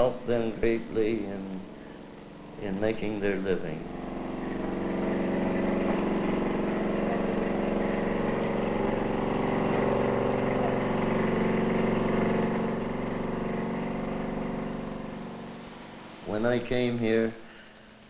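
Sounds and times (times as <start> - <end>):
bulldozer diesel engine droning: 0.0 - 16.9.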